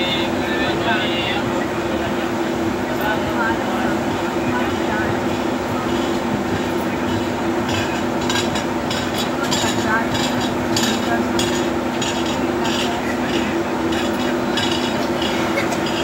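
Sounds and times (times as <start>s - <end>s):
train wheels rumbling on rails: 0.0s - 16.0s
wheel clicks and clanks: 6.0s - 16.0s.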